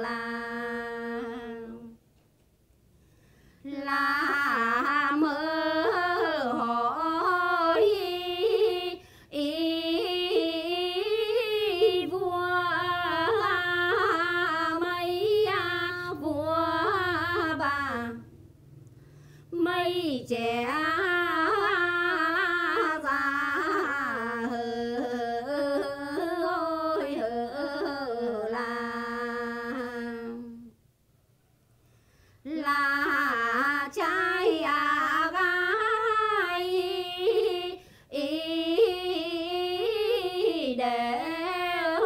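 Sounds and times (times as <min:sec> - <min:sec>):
women singing unaccompanied: 0:00.0 - 0:02.0, 0:03.6 - 0:18.4, 0:19.4 - 0:30.8, 0:32.4 - 0:42.0.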